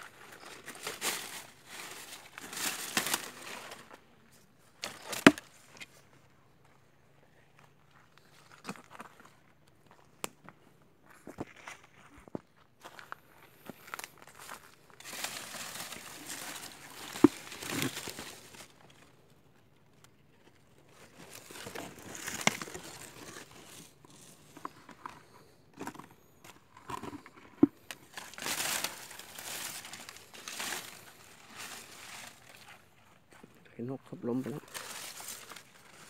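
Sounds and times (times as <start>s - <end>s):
leaves rustling: 0.0s - 4.0s, 14.4s - 19.2s, 20.8s - 24.7s, 27.6s - 33.4s, 34.3s - 36.0s
footsteps crunching on leaves and stones: 0.0s - 6.8s, 11.0s - 19.2s, 20.4s - 36.0s.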